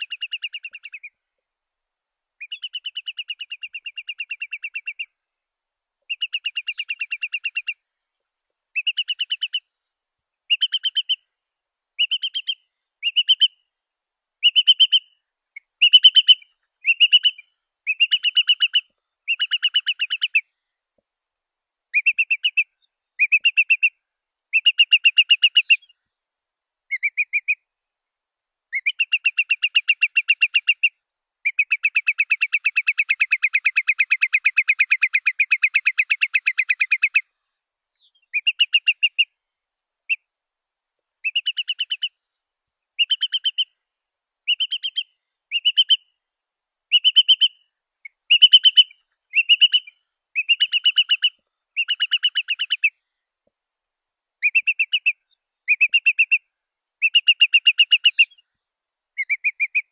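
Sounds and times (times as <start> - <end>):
curlew calling in trilled notes: 0.0 - 1.2, 2.4 - 5.2, 6.1 - 7.8, 8.8 - 9.7, 10.5 - 11.3, 12.0 - 13.6, 14.4 - 20.5, 21.9 - 26.0, 26.9 - 27.6, 28.7 - 37.3, 37.9 - 39.4, 41.2 - 42.2, 43.0 - 43.8, 44.4 - 46.1, 46.9 - 53.0, 54.4 - 58.4, 59.2 - 59.9.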